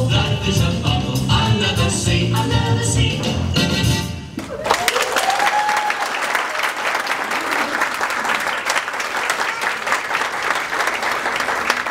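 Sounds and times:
person cheering: 4.4 - 7.9
audience applauding: 4.4 - 11.9.

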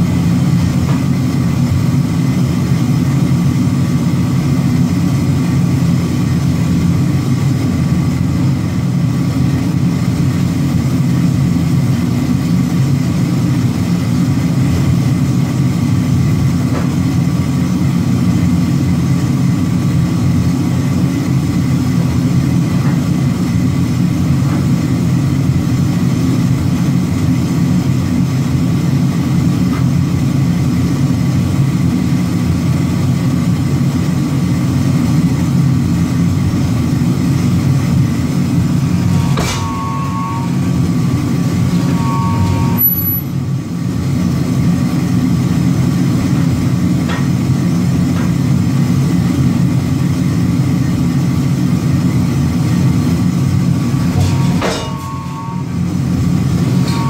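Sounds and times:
forging press drone: 0.0 - 57.0
high squeals: 39.0 - 43.4, 54.2 - 55.8, 56.7 - 57.0
metallic clanks: 54.1 - 55.6.

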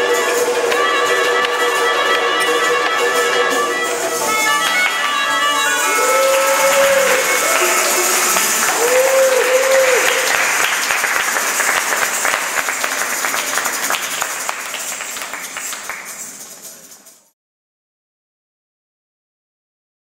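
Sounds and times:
audience applauding: 5.7 - 16.5
audience cheering and whooping: 5.8 - 10.8.

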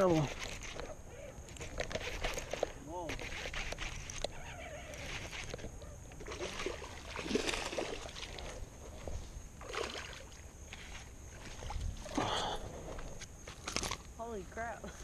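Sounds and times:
fish splashing in water: 6.2 - 8.6.

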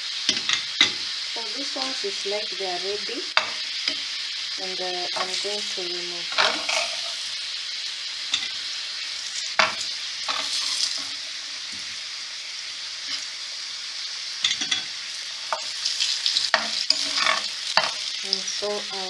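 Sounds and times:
slices sizzling in hot oil: 0.0 - 19.0
spatula scraping a pan: 6.3 - 7.3, 9.6 - 11.2, 16.4 - 18.1.

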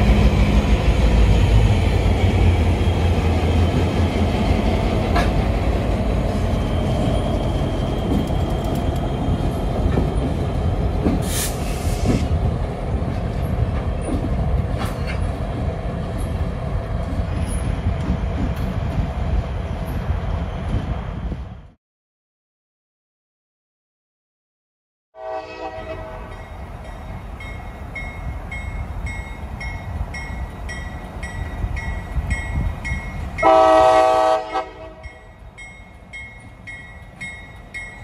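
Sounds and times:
diesel locomotive rumble: 0.0 - 21.7
short hiss: 11.2 - 12.2.

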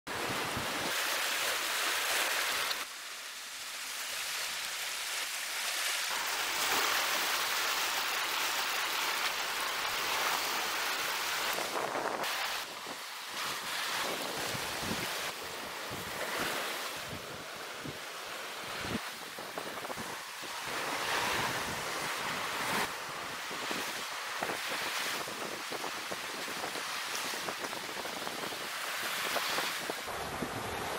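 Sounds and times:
sea waves: 0.1 - 30.9
wind on microphone: 11.3 - 30.9.

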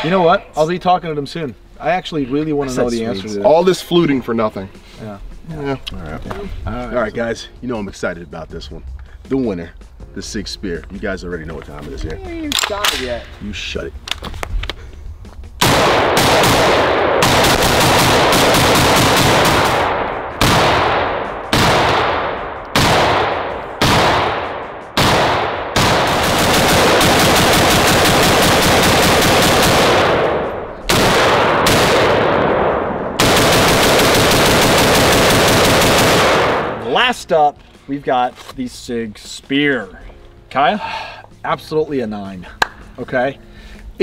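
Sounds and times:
rifle shots: 15.6 - 36.8.

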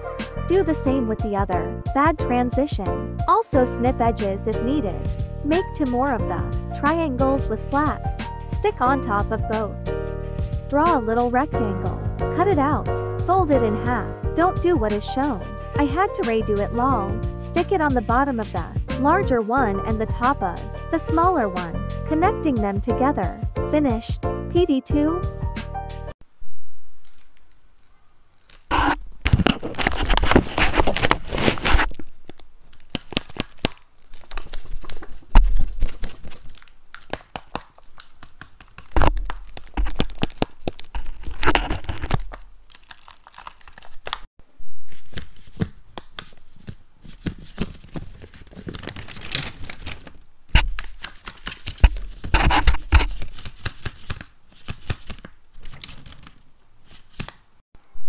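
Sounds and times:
paper rustling and crinkling: 27.0 - 57.5.

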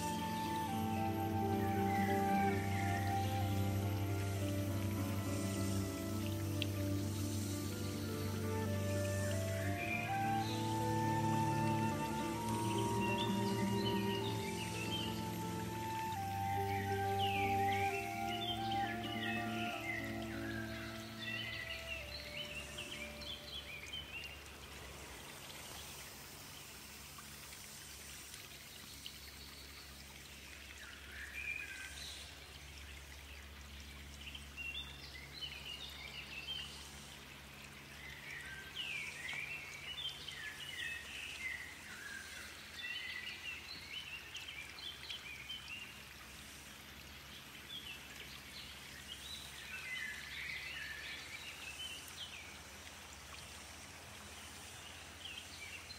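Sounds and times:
birds singing: 0.0 - 24.4
low background noise: 0.0 - 55.9.

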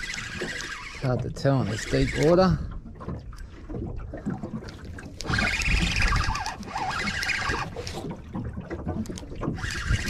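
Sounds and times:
fishing reel whirring: 0.0 - 2.6, 5.1 - 8.1, 9.1 - 10.0.

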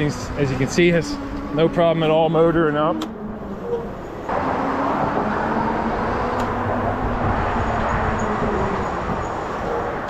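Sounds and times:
wind noise: 2.7 - 10.0.

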